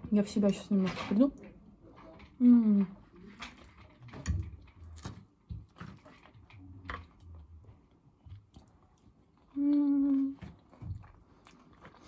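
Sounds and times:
woman chewing: 6.9s - 12.0s.

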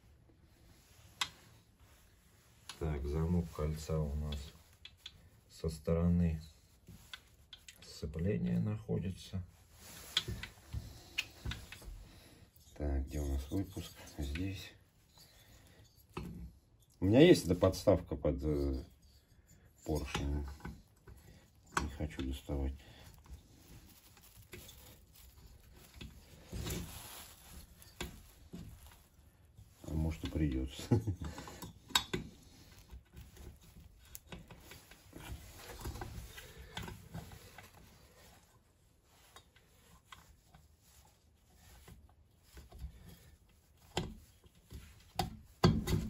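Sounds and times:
faint metal clicks and knocks: 18.8s - 38.6s.

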